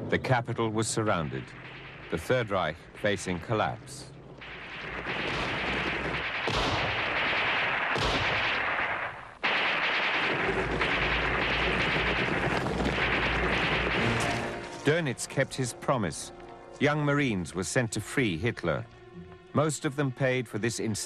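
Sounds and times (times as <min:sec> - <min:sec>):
deep rumble: 0:00.0 - 0:14.9
gunfire and shell blasts: 0:01.0 - 0:15.2.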